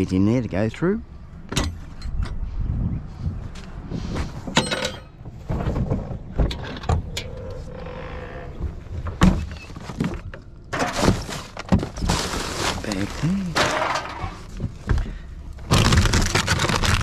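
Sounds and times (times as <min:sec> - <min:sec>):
low rumble: 0:00.7 - 0:04.4
knocks and clattering: 0:04.4 - 0:07.6, 0:13.5 - 0:17.0
cans and plastic bottles rattling: 0:09.8 - 0:14.5.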